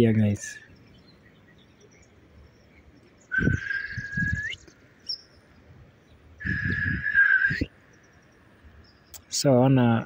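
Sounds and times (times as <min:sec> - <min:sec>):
bird calling: 0:00.1 - 0:09.4
short high bird chirp: 0:00.8 - 0:05.5, 0:06.4 - 0:09.3.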